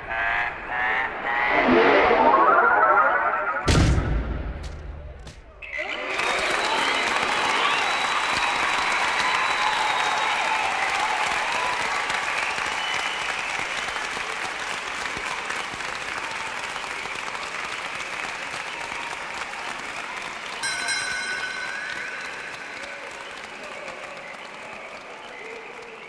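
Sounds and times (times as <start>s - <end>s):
high steady tone: 1.1s - 3.8s
crowd applauding and cheering: 5.6s - 26.0s.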